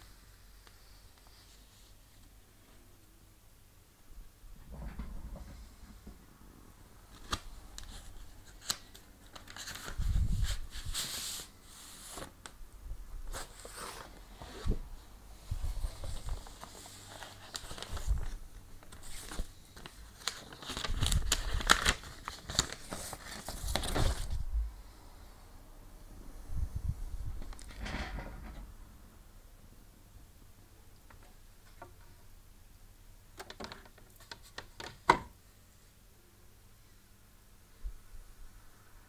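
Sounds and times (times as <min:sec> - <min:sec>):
paper and cardboard rustling: 0:07.1 - 0:12.4, 0:13.3 - 0:14.8, 0:15.5 - 0:24.4
small clicks and knocks: 0:33.4 - 0:35.3.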